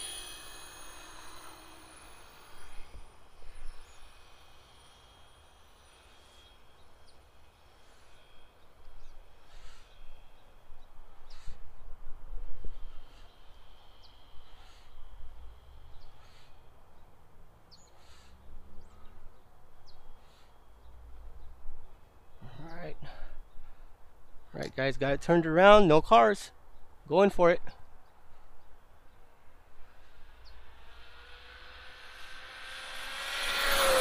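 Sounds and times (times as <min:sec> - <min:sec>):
birds calling: 0:00.0 - 0:12.0, 0:12.6 - 0:24.6.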